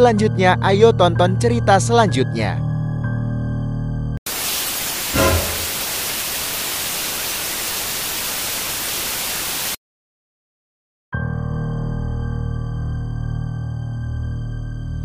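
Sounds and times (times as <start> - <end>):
tv static hiss: 4.3 - 9.8
synth music: 5.2 - 5.9.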